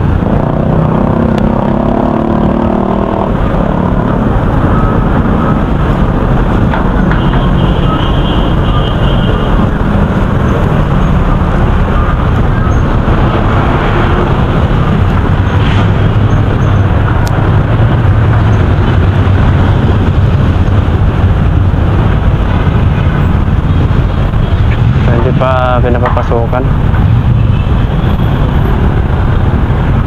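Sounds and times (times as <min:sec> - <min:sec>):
road traffic noise: 0:00.0 - 0:30.0.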